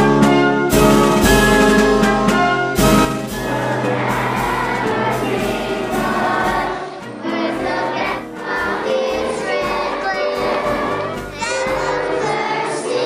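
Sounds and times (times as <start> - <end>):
patriotic brass music: 0.0 - 12.4
children singing: 3.3 - 13.0.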